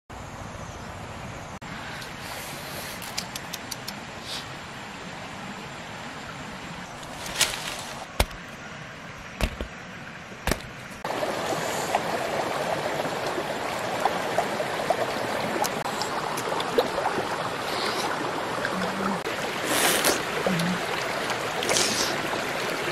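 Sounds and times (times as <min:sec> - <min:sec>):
outdoor ambience: 0:00.1 - 0:22.9
sharp clicks: 0:03.0 - 0:04.0
stream water rushing: 0:03.9 - 0:22.9.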